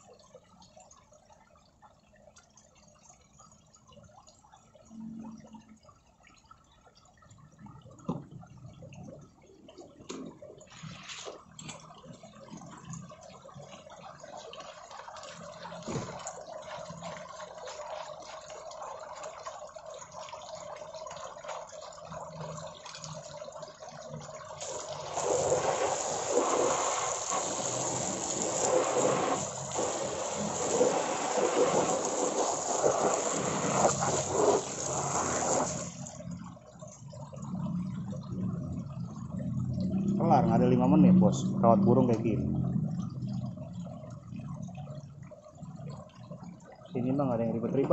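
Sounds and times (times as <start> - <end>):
water trickling: 0.0 - 47.9
hose water splashing: 10.0 - 13.0, 13.6 - 19.6, 24.5 - 36.4.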